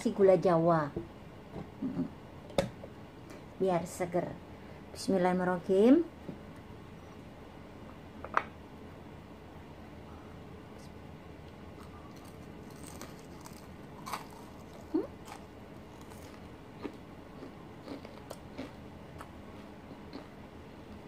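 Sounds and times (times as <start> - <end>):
crunchy fried food chewing: 11.8 - 20.4.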